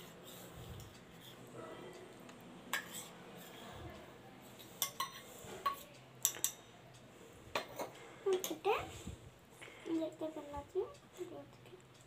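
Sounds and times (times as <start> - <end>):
spoon stirring fruit in bowl: 0.0 - 3.7, 4.4 - 6.7.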